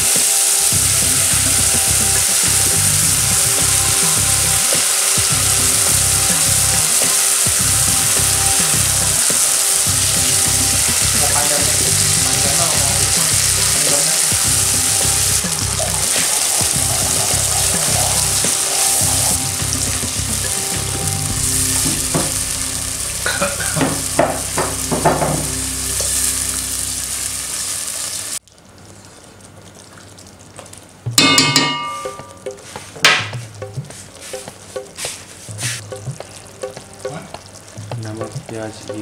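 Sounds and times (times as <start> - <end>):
paste sizzling in oil: 0.0 - 28.4, 31.6 - 39.0
cooking noise: 0.0 - 39.0
ringing clink: 31.2 - 32.4.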